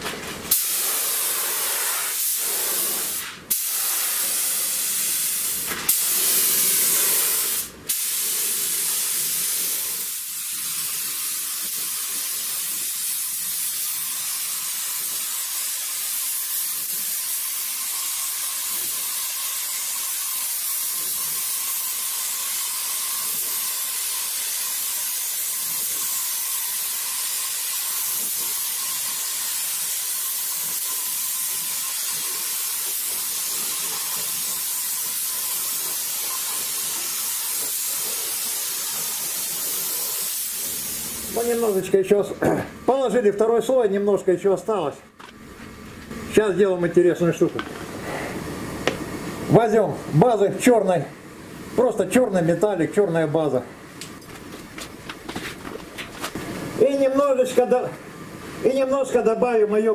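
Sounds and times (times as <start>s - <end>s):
paint spray gun hissing: 0.5s - 41.8s.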